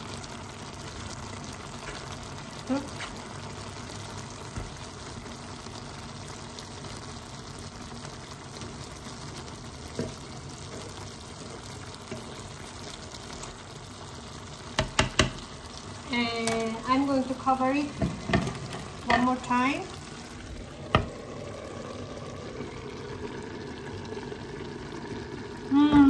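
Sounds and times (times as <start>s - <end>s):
stew bubbling in a pan: 0.0s - 26.0s
spatula knocking against pan: 14.8s - 15.4s.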